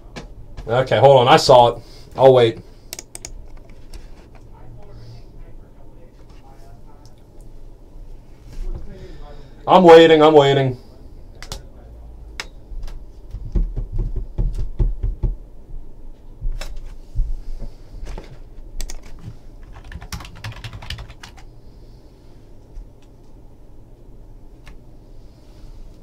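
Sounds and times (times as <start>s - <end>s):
typing on computer keyboard: 2.9s - 3.7s, 18.8s - 21.5s.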